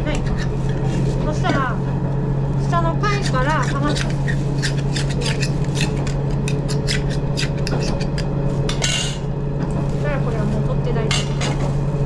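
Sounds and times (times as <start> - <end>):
knife scraping shell: 3.2 - 9.2
railcar engine hum: 8.1 - 12.0.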